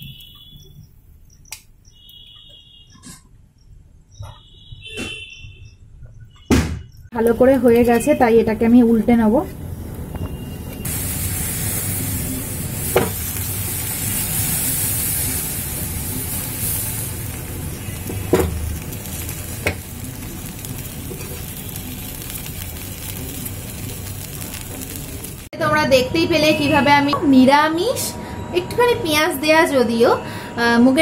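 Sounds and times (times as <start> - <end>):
batter sizzling in oil: 7.2 - 25.5.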